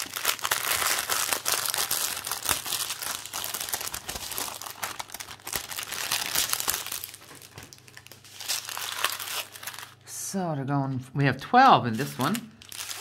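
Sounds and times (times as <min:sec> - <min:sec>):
plastic packaging crinkling: 0:00.0 - 0:10.0, 0:11.9 - 0:13.0.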